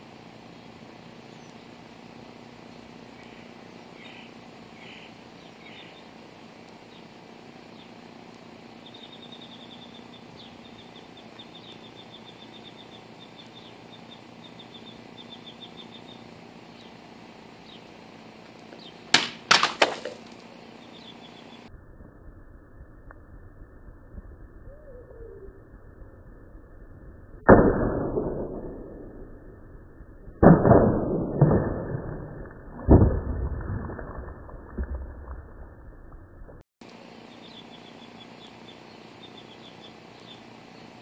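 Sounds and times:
small bird chirping: 3.2 - 6.2, 8.7 - 18.0, 18.6 - 19.1, 20.6 - 21.7, 37.0 - 41.0.

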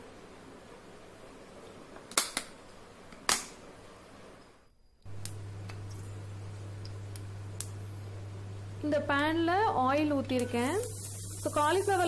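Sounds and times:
steady low hum: 4.2 - 12.0.

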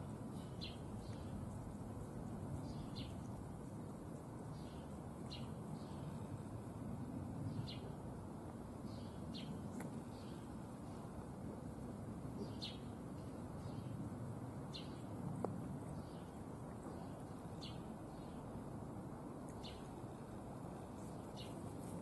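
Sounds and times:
low background rumble: 0.0 - 22.0
bird chirping: 0.4 - 1.3, 2.6 - 3.3, 12.4 - 12.9, 15.9 - 18.4, 19.5 - 20.0.

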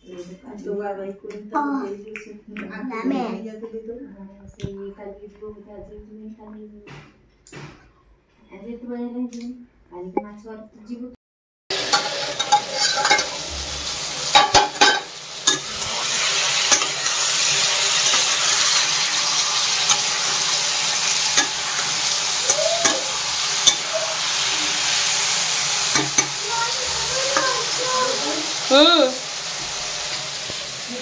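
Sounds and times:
vegetables sizzling in oil: 11.7 - 31.0
metal spatula scraping pan: 11.8 - 28.1.

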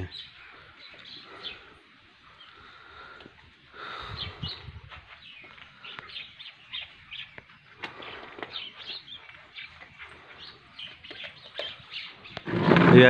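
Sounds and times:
small birds chirping: 0.0 - 12.8.

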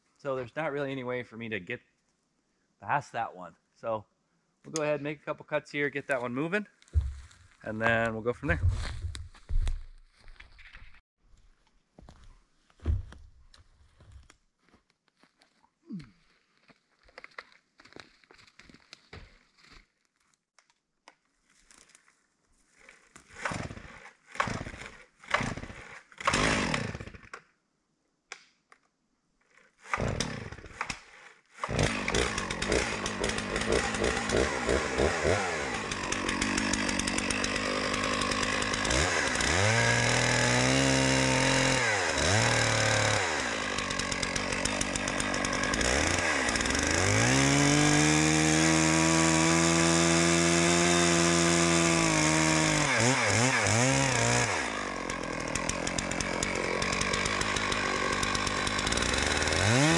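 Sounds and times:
chainsaw engine cutting: 6.9 - 7.8, 23.3 - 27.3, 29.6 - 59.9
chainsaw starter cord pulls: 23.3 - 27.4, 29.5 - 59.9.

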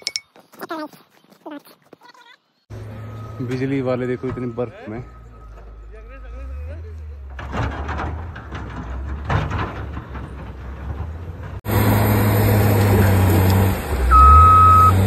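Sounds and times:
reversing beeper: 2.8 - 6.8, 14.1 - 15.0
heavy vehicle engine running: 5.1 - 15.0.

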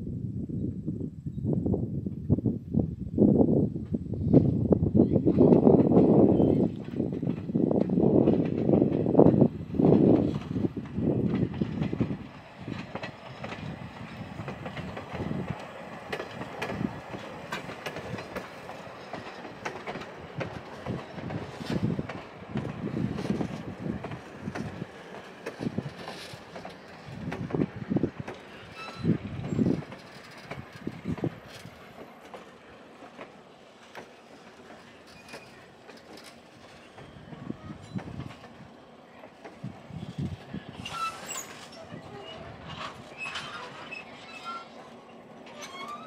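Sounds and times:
train wheels thumping on rails: 5.2 - 41.9
wheels clicking over track: 5.3 - 46.0.

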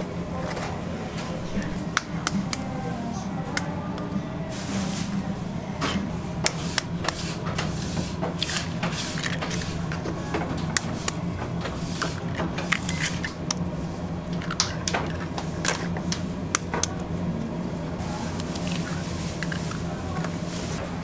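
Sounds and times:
steady low hum: 0.0 - 21.0
eggs cracking on a metal bowl: 1.8 - 2.8, 14.3 - 17.0.

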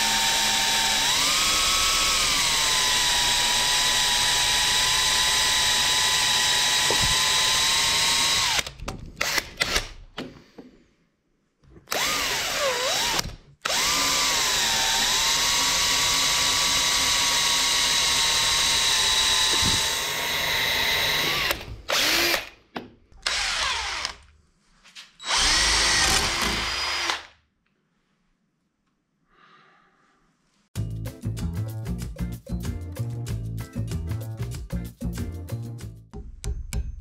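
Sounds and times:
power drill boring into steel: 0.0 - 9.9, 11.9 - 22.5, 23.2 - 24.2, 25.2 - 27.3.

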